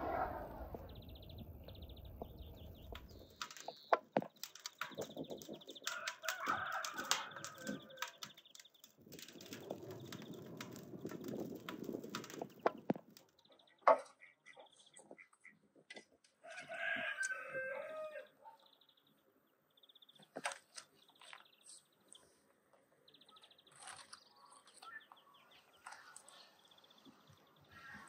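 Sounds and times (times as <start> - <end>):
sharp clicks and knocks: 2.1 - 14.1.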